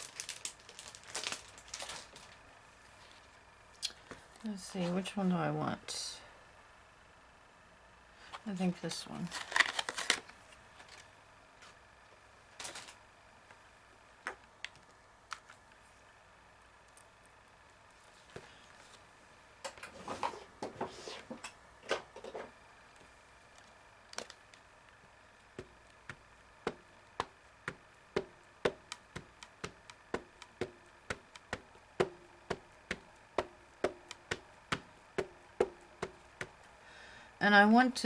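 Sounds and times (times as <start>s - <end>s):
ink pad tapping on rubber stamp: 25.6s - 36.7s.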